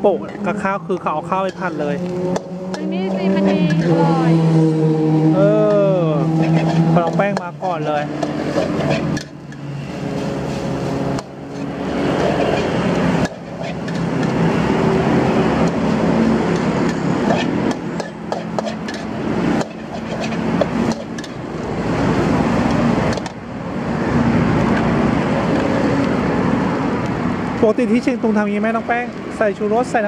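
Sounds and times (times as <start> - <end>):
metal spatula scraping wok: 0.1 - 4.1, 6.2 - 22.1
rice sizzling in wok: 9.9 - 14.6
spatula clanking against wok: 16.5 - 21.4.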